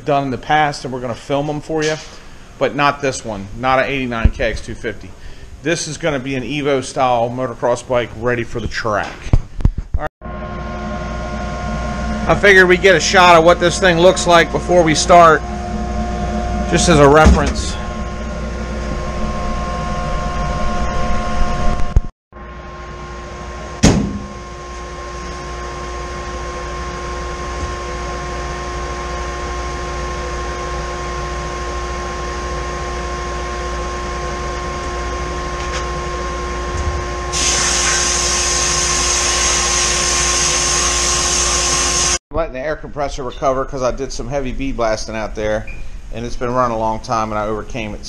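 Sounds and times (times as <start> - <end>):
cabinet mechanical hum: 10.3 - 42.2
sharp knock: 23.8 - 24.3
blast gun air hiss: 37.3 - 42.2.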